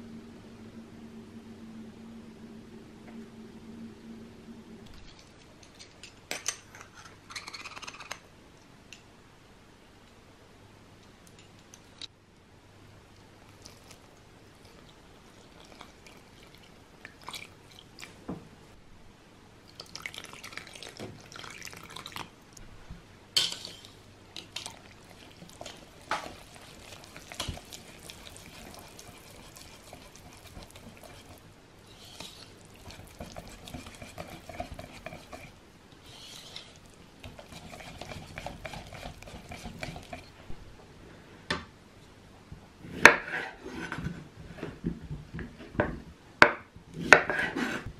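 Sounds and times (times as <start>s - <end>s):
water pouring into flour: 19.7s - 22.3s
batter stirring and scraping bowl: 23.4s - 40.4s.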